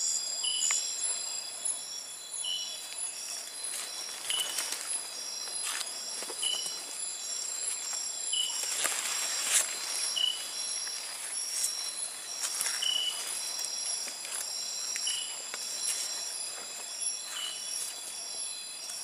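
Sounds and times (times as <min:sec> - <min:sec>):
insects shrilling: 0:00.0 - 0:19.0
footsteps on dry leaves: 0:03.6 - 0:18.2.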